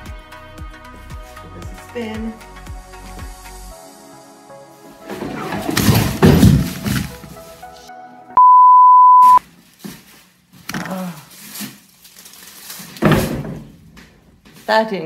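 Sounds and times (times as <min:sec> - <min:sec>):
background music: 0:00.0 - 0:08.4
censor bleep: 0:08.4 - 0:09.4.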